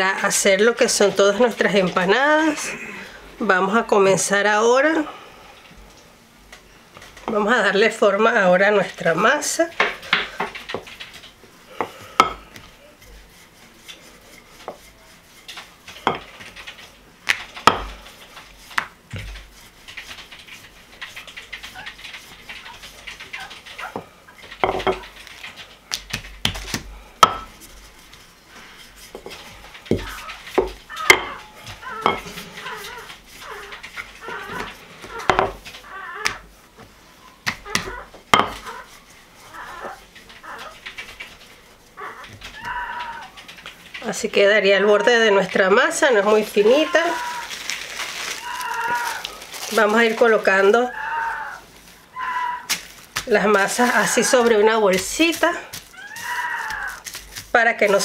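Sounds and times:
rolling pin knocking on counter: 17.6 - 17.9, 24.6 - 25.0, 27.2 - 27.5, 35.2 - 35.6, 37.5 - 38.7.

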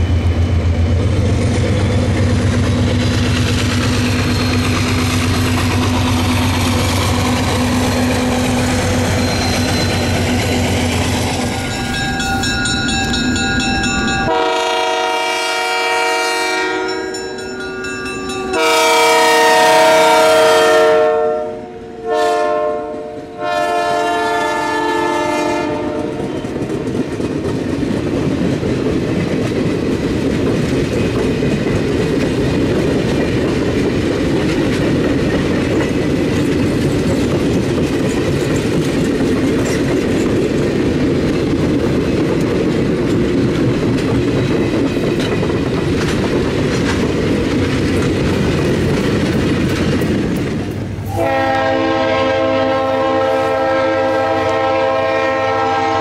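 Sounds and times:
train cars rumbling past: 0.0 - 56.0
wheels clacking over rail joints: 1.0 - 14.4, 26.3 - 51.4
train air horn: 14.2 - 17.1, 18.5 - 26.6, 51.0 - 56.0.

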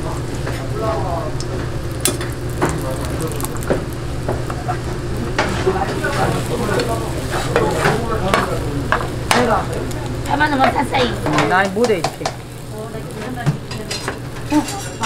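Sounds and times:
omelette sizzling in oil: 0.1 - 15.0.

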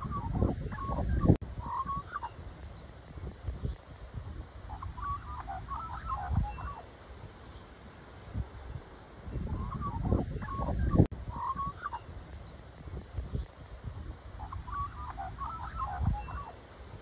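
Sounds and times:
wind rumbling on microphone: 0.0 - 17.0
magpie calling: 1.6 - 2.4, 4.7 - 6.9, 9.5 - 12.1, 14.4 - 16.6.

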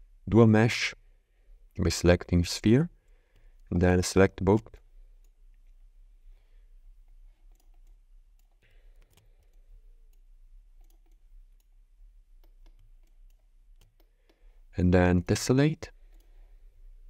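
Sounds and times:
computer mouse clicks: 7.4 - 11.8, 12.4 - 14.5.

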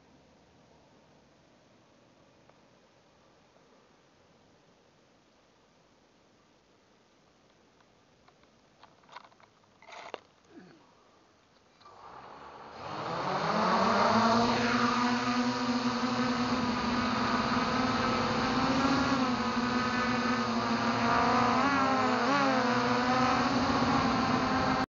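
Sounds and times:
drone motors whining: 11.9 - 24.9.

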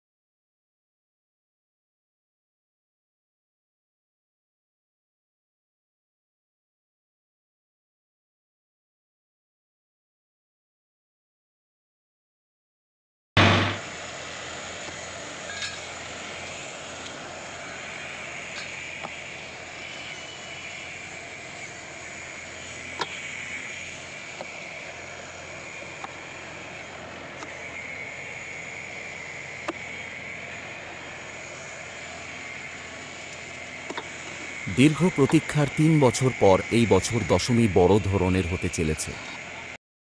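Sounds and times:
short loud burst: 13.4 - 13.9
low hum: 13.4 - 39.7
high-pitched buzz: 13.4 - 39.8.

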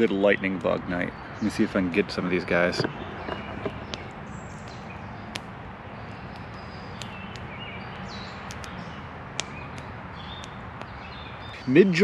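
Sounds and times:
distant traffic drone: 0.0 - 12.0
sharp clicks: 2.8 - 11.2.

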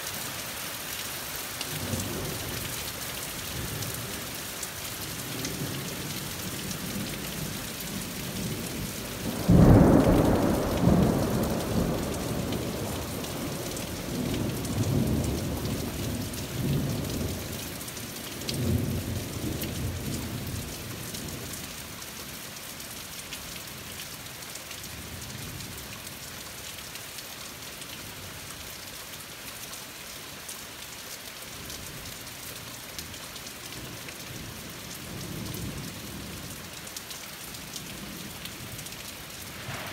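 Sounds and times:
steady rain: 0.0 - 39.9
thunder rumbling: 9.2 - 13.6, 39.5 - 39.9.

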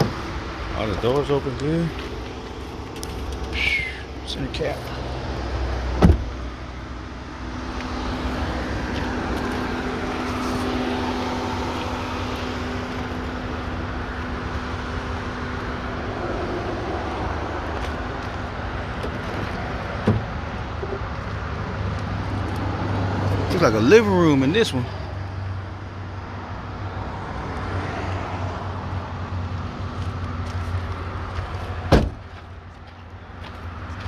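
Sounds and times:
motor vehicle humming: 0.0 - 34.0
car door shutting: 5.9 - 6.4, 19.0 - 21.0, 31.9 - 32.3
light thump: 6.0 - 6.3, 31.9 - 32.2.

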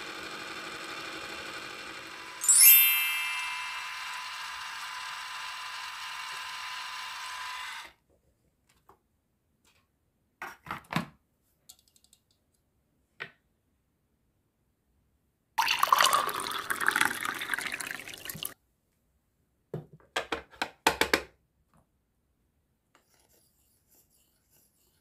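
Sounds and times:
toy mixer whirring: 0.0 - 8.0, 15.6 - 18.6.

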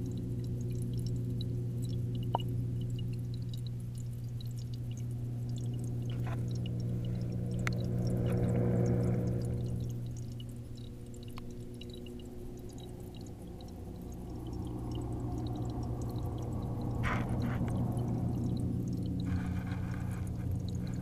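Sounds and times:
low electrical hum: 0.0 - 21.0
small ticks: 0.0 - 21.0
faint watery hiss: 5.9 - 21.0.

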